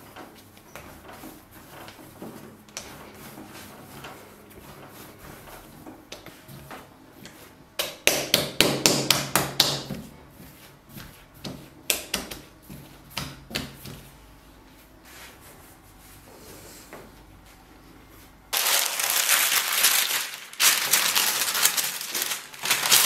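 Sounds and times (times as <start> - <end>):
soft rubbing of dough: 0.0 - 7.8, 9.2 - 23.0
dough knocks and slaps on wood: 5.9 - 10.1, 11.0 - 14.1.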